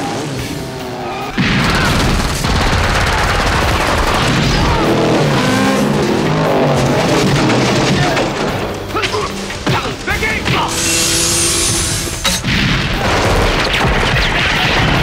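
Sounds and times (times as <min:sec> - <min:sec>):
film music: 0:00.0 - 0:15.0
gunfire shots and booms: 0:01.4 - 0:05.0, 0:12.4 - 0:15.0.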